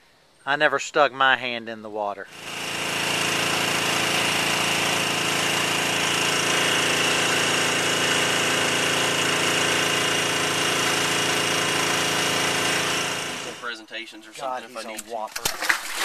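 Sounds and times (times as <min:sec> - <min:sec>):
boat engine droning: 0:02.3 - 0:14.8.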